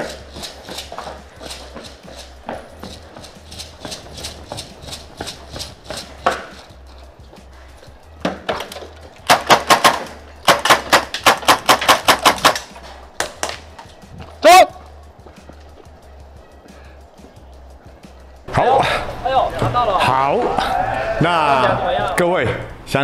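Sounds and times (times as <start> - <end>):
running footsteps: 0.0 - 21.2
airsoft pistol firing: 9.2 - 13.4.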